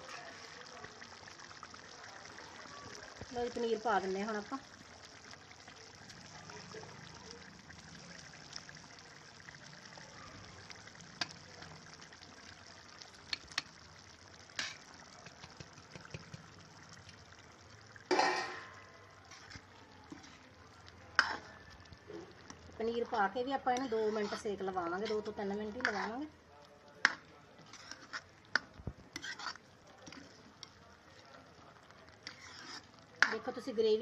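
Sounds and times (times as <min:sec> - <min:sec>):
gravy simmering with bubbling hiss: 0:00.0 - 0:34.0
ladle scraping a pan: 0:14.6 - 0:14.9, 0:18.1 - 0:20.5, 0:21.1 - 0:22.6, 0:23.6 - 0:26.2, 0:27.0 - 0:30.7, 0:32.2 - 0:33.7.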